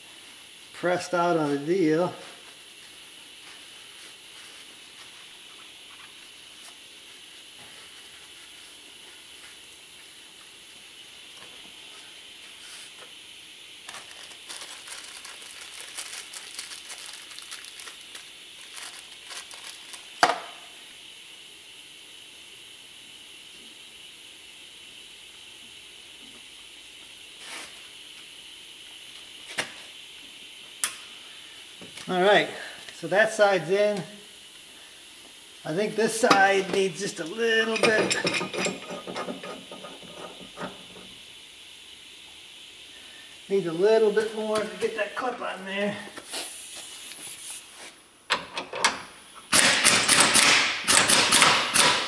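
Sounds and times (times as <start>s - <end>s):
paper wrapper crinkling: 13.9s - 20.2s.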